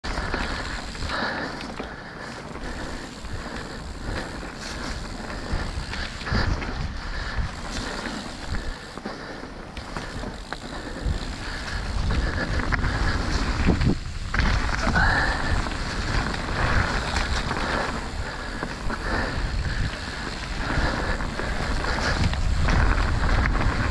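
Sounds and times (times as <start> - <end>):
bike knocking and rattling: 0.0 - 23.9
bike tyres rumbling over dirt: 0.0 - 23.9
wind on microphone: 10.2 - 23.9.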